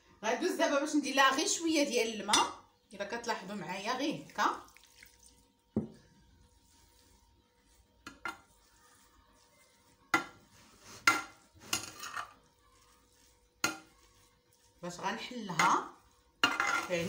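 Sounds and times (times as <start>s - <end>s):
metal spoon scraping clay dish: 6.4s - 17.0s.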